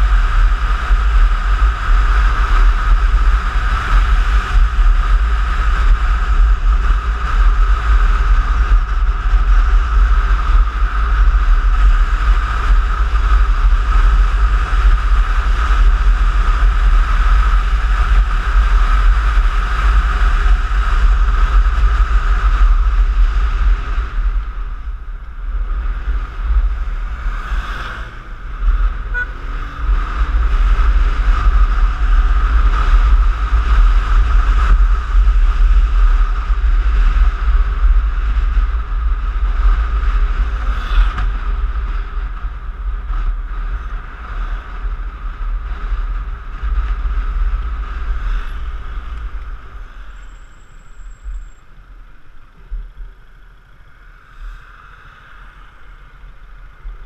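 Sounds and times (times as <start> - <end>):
wind rumble on microphone: 0.0 - 57.0.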